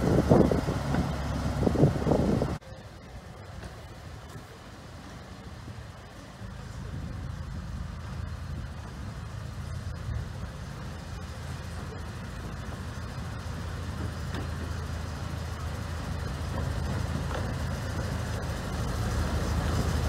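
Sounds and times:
diesel locomotive engine humming: 0.0s - 20.0s.

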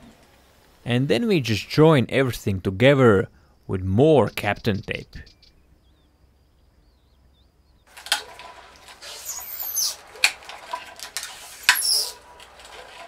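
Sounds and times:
tape peeling off roll: 7.9s - 13.0s.

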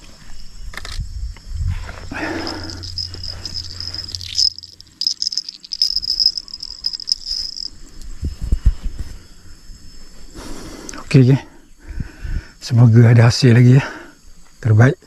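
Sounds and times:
insect trilling: 1.9s - 8.6s.

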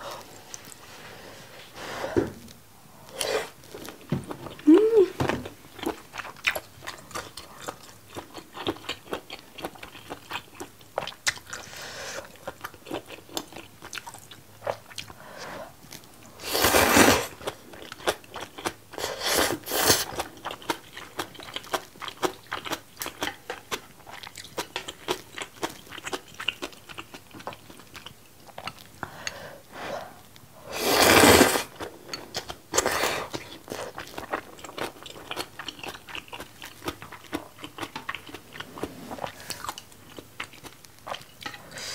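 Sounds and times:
wet chewing: 5.4s - 15.2s, 17.4s - 29.2s, 31.7s - 41.6s.

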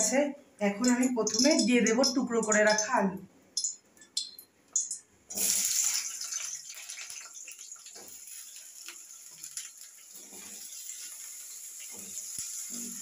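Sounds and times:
potatoes sizzling in hot oil: 5.3s - 13.0s.

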